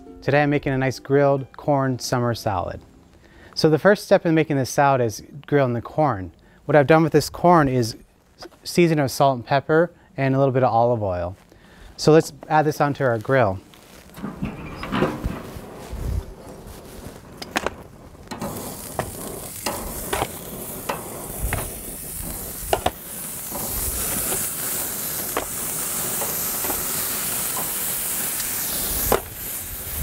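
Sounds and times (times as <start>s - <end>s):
sizzling on grill: 12.1s - 30.0s
corn and tongs knocking grill grates: 17.2s - 30.0s.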